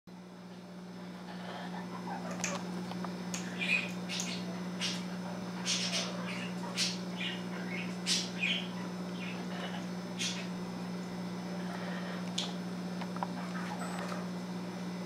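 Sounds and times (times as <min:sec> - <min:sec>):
parrot chirps: 0:03.4 - 0:05.0, 0:05.6 - 0:10.5.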